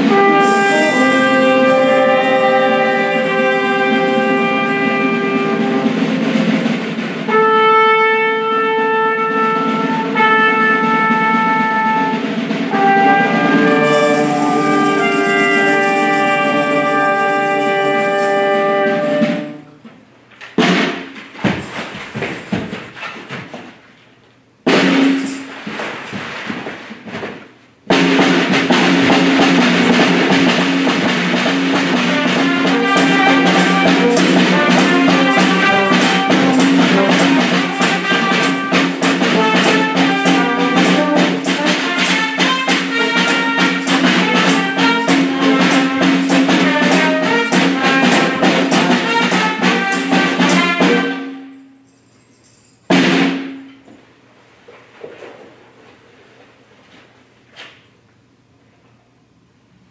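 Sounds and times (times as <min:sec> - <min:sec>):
fast dense drumming and percussion: 0:00.0 - 0:07.9, 0:09.0 - 0:19.5, 0:24.7 - 0:25.9, 0:27.9 - 0:51.2, 0:52.9 - 0:53.6
held low notes: 0:09.6 - 0:18.2.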